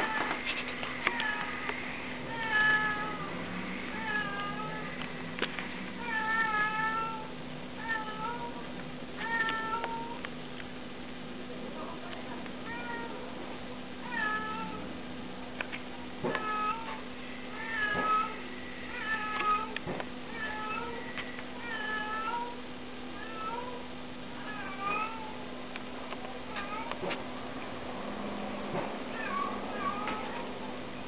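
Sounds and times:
cat meowing: 2.3s - 3.3s, 3.9s - 5.0s, 9.2s - 10.2s, 16.4s - 19.8s, 20.4s - 22.6s, 24.4s - 25.4s, 29.1s - 30.6s.

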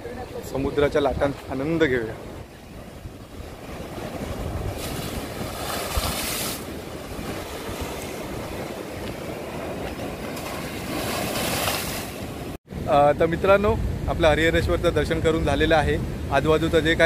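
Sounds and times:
wind rumbling on microphone: 0.0s - 17.0s
waves breaking against seawall: 0.1s - 12.6s.

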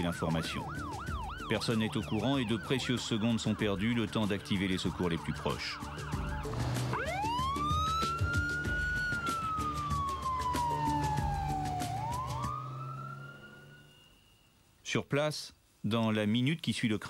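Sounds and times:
music playing: 0.0s - 13.3s
emergency siren wailing: 0.0s - 14.3s.

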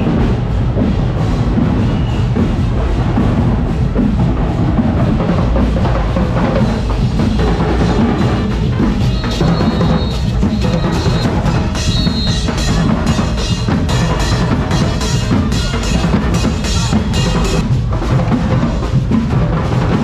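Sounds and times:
parade band drumming: 0.0s - 20.0s
high held tone: 9.0s - 17.6s.

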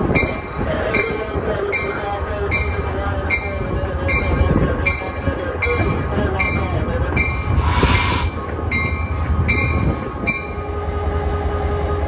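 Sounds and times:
locomotive engine rumbling: 0.0s - 12.0s
brief hiss: 7.6s - 8.4s.

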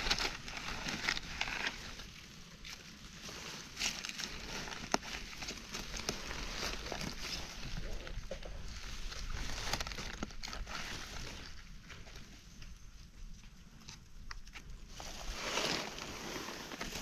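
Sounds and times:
dry leaves rustling: 0.0s - 13.0s, 14.9s - 17.0s
sharp crunches and snaps: 3.6s - 14.9s.

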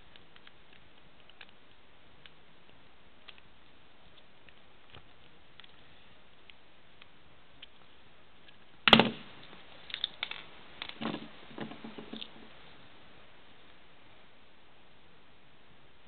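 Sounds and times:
small plastic clicks and rattles: 0.0s - 2.4s.

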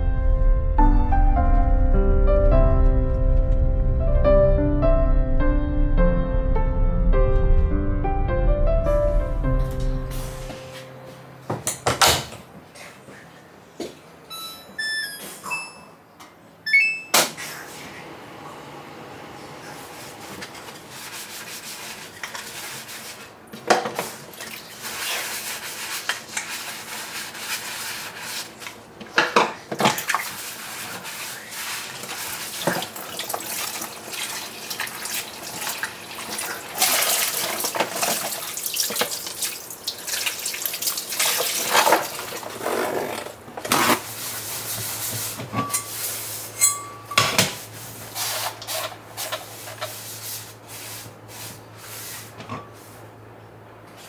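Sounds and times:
water running and splashing: 29.9s - 42.6s
dishes clinking: 46.6s - 47.6s.

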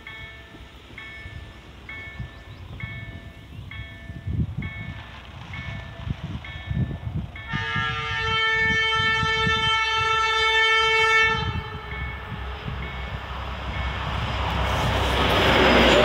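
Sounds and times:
locomotive horn blast: 7.5s - 12.7s.

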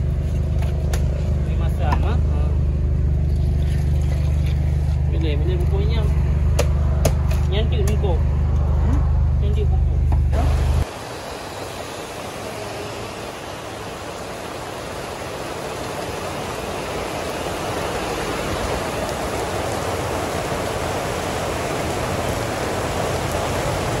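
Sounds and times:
heavy rain on road: 10.4s - 24.0s.

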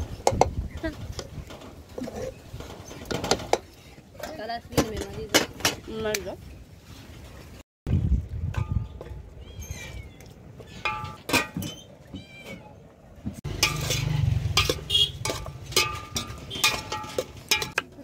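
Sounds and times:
metal ladle scraping a pot: 13.5s - 17.9s.

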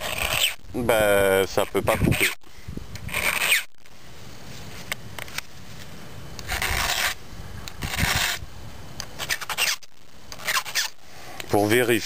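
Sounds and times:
file rasping on chainsaw chain: 0.0s - 0.6s, 6.5s - 7.2s.

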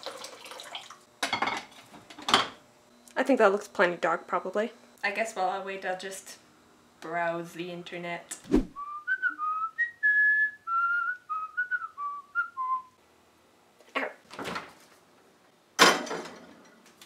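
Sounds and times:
person whistling a tune: 8.8s - 13.0s.

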